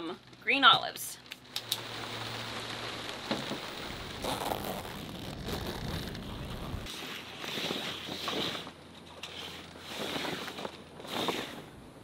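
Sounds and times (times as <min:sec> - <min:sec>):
canvas rustling: 0:01.6 - 0:11.7.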